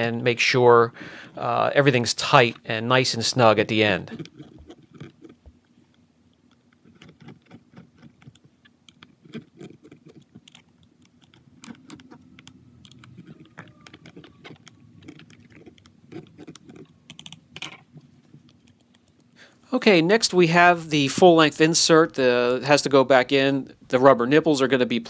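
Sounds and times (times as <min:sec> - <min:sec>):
screwdriver clicking and scraping: 0:06.5 - 0:17.8.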